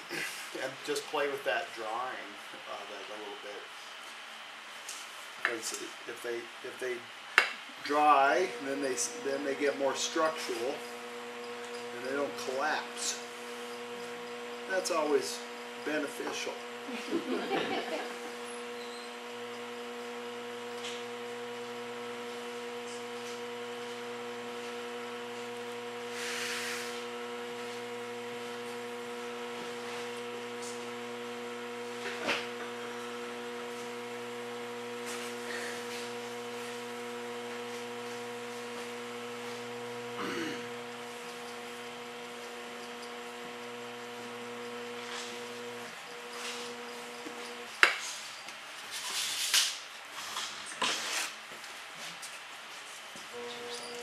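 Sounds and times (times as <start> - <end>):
potter's wheel motor humming: 6.7 - 48.6, 53.2 - 54.0.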